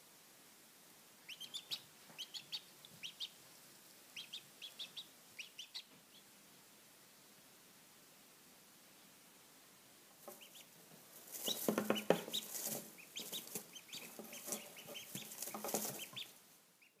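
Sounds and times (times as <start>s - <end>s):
ducklings peeping: 1.2s - 6.4s, 10.2s - 17.0s
rustling in dry straw: 10.3s - 16.5s.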